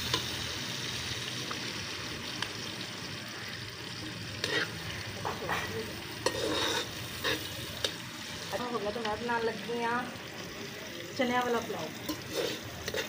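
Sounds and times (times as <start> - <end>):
frying in hot oil sizzling: 0.0 - 13.0
metal spatula scraping pan: 4.4 - 7.6, 12.0 - 13.0.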